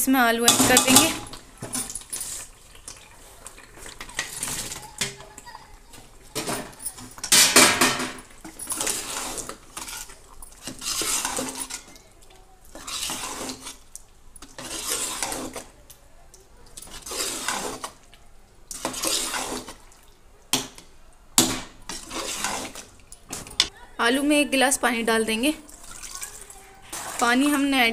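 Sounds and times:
metal ladle scraping pot: 0.4s - 5.4s, 6.0s - 12.1s, 12.7s - 15.8s, 16.9s - 18.0s, 18.7s - 19.9s, 21.5s - 23.4s, 26.8s - 27.9s.

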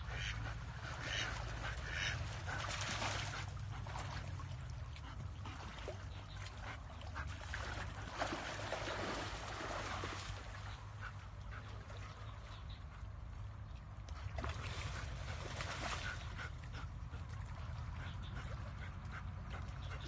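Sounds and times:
ducks quacking: 0.0s - 2.7s
steady low hum: 0.0s - 20.0s.

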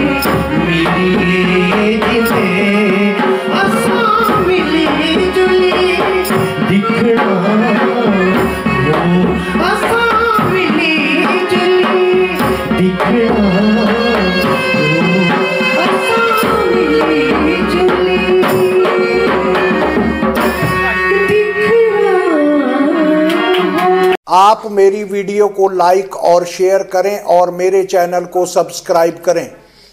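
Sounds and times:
hand drum rhythm: 0.0s - 21.2s
person singing folk song: 0.0s - 23.0s.

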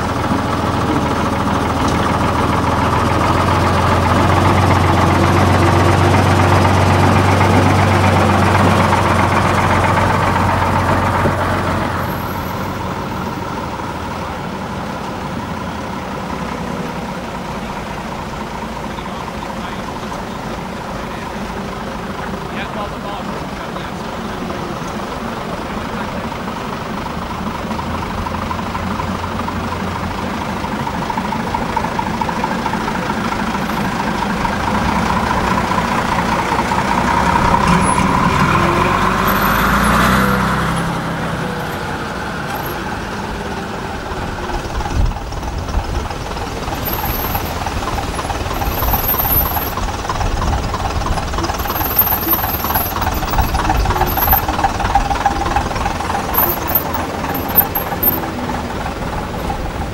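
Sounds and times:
knocking diesel bus engine running: 0.0s - 59.9s
lorry diesel engine driving past: 0.0s - 59.9s.

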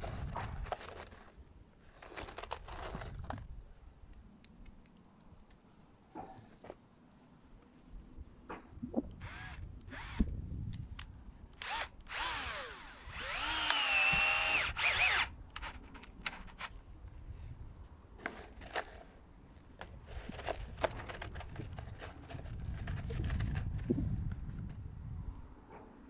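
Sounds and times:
cordless drill motor whine: 9.2s - 10.4s, 11.6s - 15.4s.

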